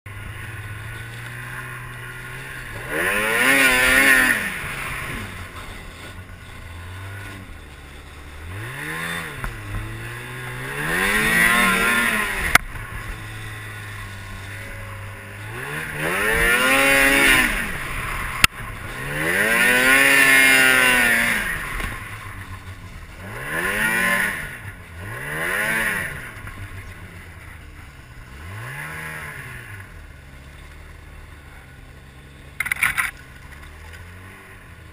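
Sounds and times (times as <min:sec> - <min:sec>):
snowmobile engine revving: 0:00.1 - 0:34.9
sharp clicks: 0:32.6 - 0:33.2.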